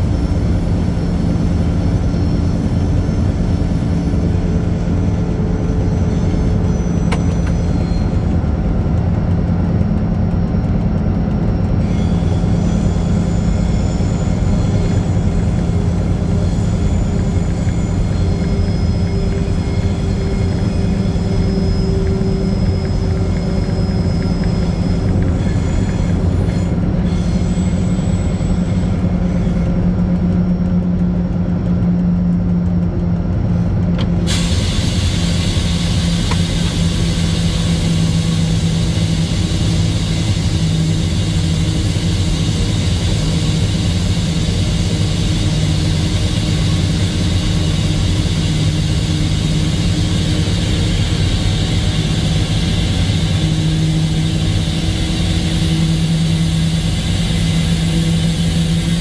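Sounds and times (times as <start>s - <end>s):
locomotive engine drone: 0.0s - 59.0s
hissing noise: 34.2s - 59.0s.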